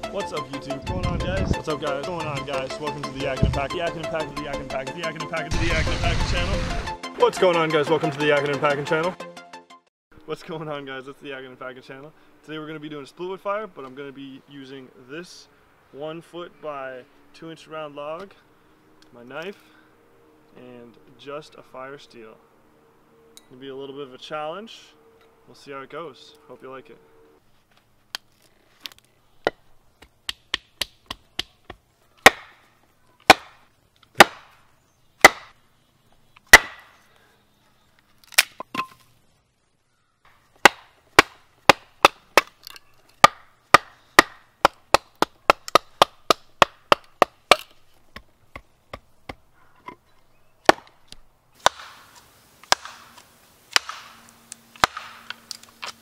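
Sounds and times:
rough rustling: 0:26.3 - 0:30.1, 0:30.7 - 0:56.0
wooden baton striking knife spine: 0:40.6 - 0:47.8.

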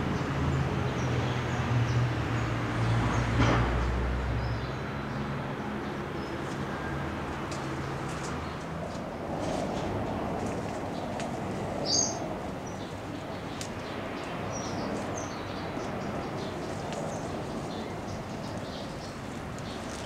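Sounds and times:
birds chirping: 0:04.4 - 0:20.0
outdoor background hiss: 0:04.8 - 0:20.0.

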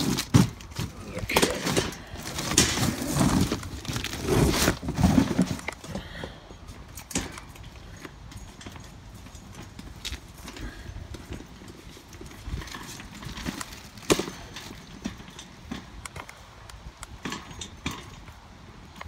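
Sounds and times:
cardboard rustling: 0:00.0 - 0:05.9.

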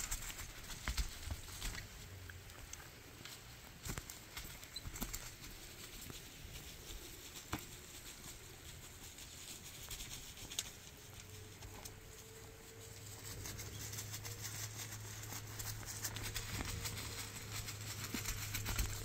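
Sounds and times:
stone roller crunching on earth: 0:13.6 - 0:19.0.

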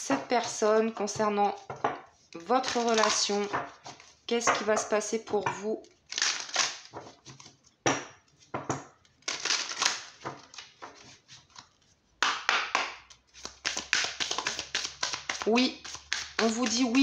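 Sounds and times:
cards shuffled by hand: 0:02.6 - 0:04.1, 0:09.2 - 0:12.0, 0:13.1 - 0:17.0.

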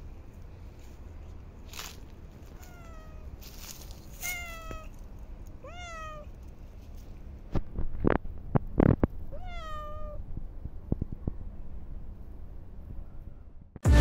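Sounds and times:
rustling: 0:00.3 - 0:05.6
cat meowing: 0:02.5 - 0:03.3, 0:04.2 - 0:04.9, 0:05.6 - 0:06.3, 0:09.3 - 0:10.2.

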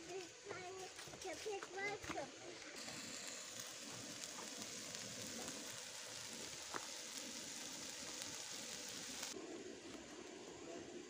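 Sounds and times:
food sizzling in a grill pan: 0:02.8 - 0:09.4.

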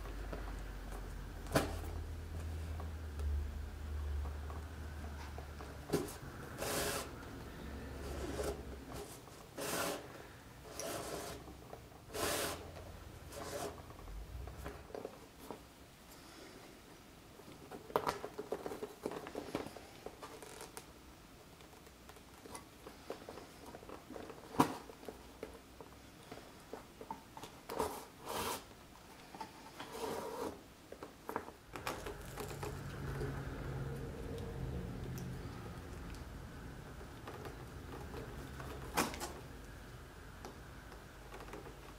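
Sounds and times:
low steady hum: 0:31.6 - 0:41.9.

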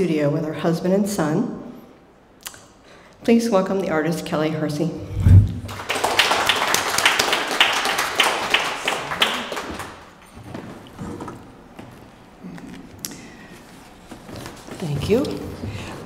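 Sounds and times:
low thump: 0:05.1 - 0:05.7
small audience applauding: 0:05.6 - 0:10.2.

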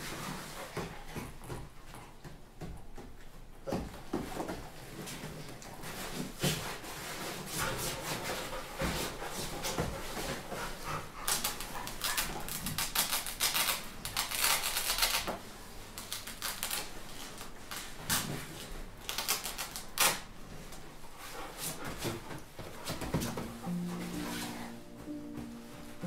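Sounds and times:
paper and cloth rustling: 0:15.9 - 0:26.0.

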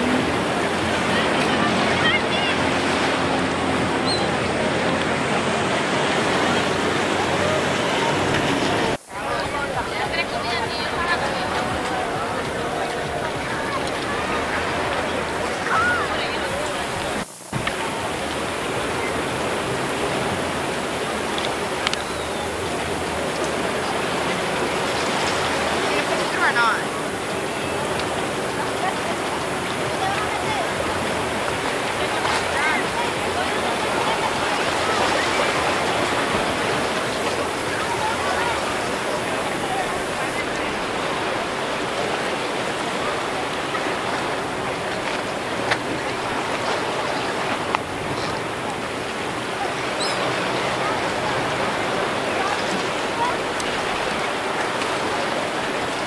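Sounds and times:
choppy sea water and surf: 0:00.0 - 0:56.0.

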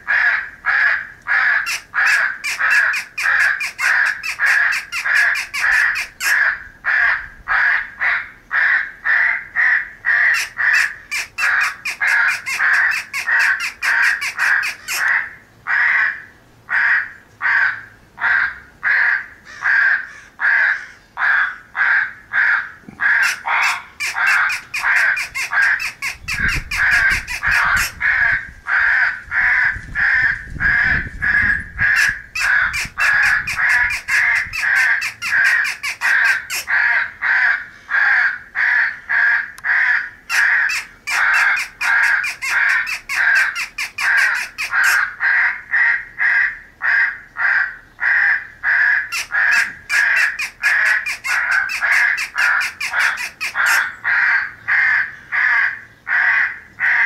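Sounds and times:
crows cawing: 0:00.0 - 0:57.0.

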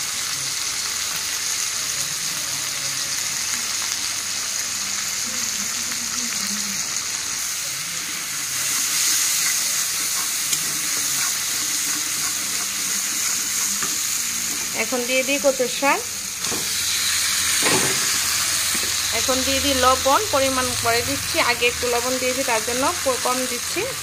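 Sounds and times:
spices sizzling in hot oil: 0:00.0 - 0:24.0
spatula stirring in a pan: 0:08.5 - 0:14.8.

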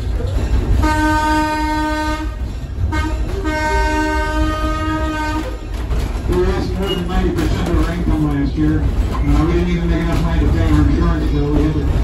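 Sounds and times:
moving train rumble: 0:00.0 - 0:12.0
train whistle blasts: 0:00.8 - 0:05.5.

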